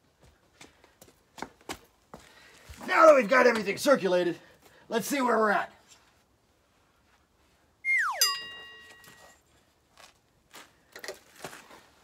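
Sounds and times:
cartoon downward whistle: 7.8 - 8.6
bright metallic ping: 8.0 - 9.2.

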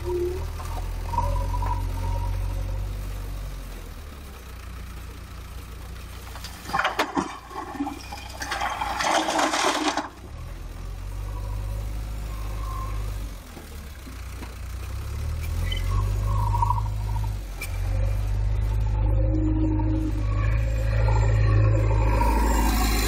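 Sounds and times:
diesel engine running: 0.0 - 23.0
stones clattering into trailer: 6.3 - 10.2.

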